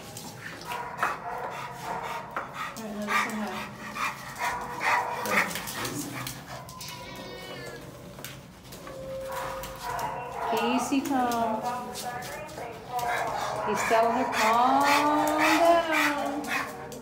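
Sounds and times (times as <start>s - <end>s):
dog whining: 5.4s - 8.1s, 8.7s - 10.6s.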